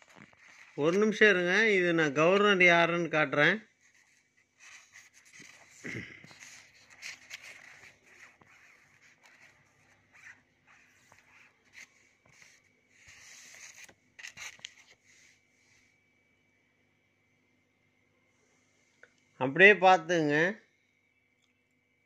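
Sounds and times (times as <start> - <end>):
banknotes in plastic sleeves rustling: 0.0 - 2.7, 3.7 - 15.9.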